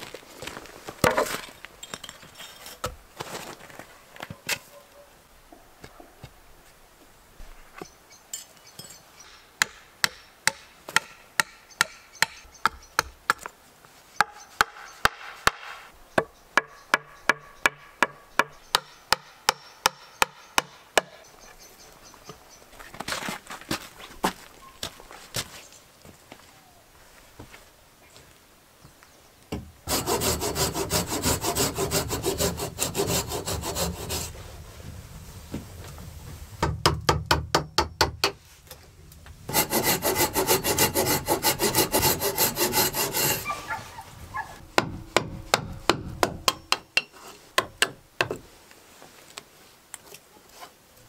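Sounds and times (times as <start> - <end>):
footsteps crunching on snow: 0.0 - 1.8, 3.2 - 4.7, 22.7 - 28.5
hatchet chopping log: 9.6 - 13.4, 44.8 - 48.4.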